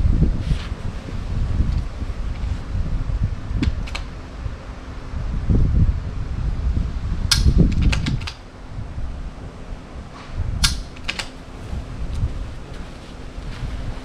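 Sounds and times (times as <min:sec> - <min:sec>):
low rumble: 0:00.0 - 0:14.0
rifle shots and bolt clicks: 0:10.6 - 0:11.4.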